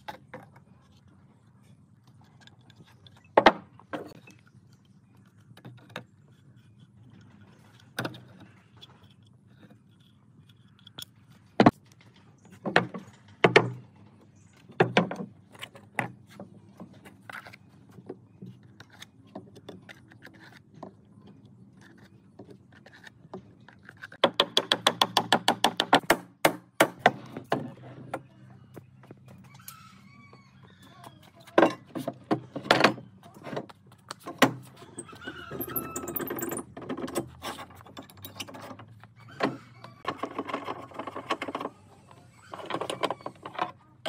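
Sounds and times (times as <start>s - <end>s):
wooden workpieces knocking: 11.6s - 14.0s, 14.6s - 29.4s.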